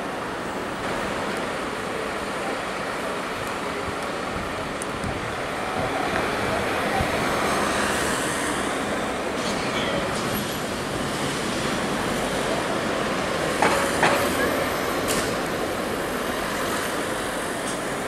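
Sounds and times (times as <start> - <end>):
street traffic rumble: 0.0 - 18.0.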